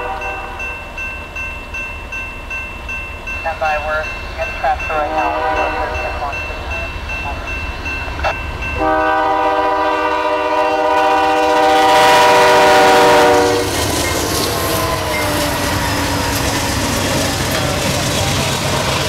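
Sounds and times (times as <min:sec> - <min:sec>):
locomotive air horn blast: 0:00.0 - 0:00.7, 0:05.0 - 0:06.3, 0:08.8 - 0:13.8
locomotives rushing past: 0:12.8 - 0:19.0.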